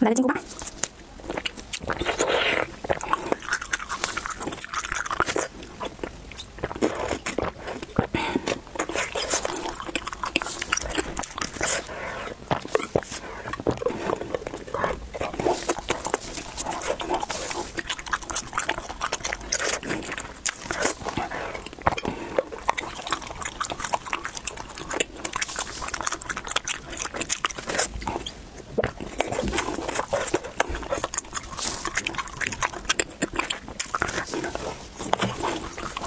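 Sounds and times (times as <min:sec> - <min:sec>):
chewing candy stick: 0:00.0 - 0:36.0.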